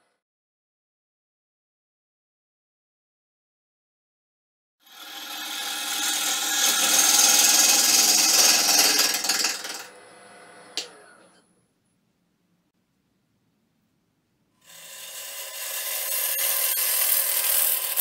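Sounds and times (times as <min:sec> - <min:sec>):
gouge shearing wood on lathe: 0:04.9 - 0:10.0, 0:14.6 - 0:18.0
lathe running quietly: 0:04.9 - 0:11.6, 0:14.7 - 0:18.0.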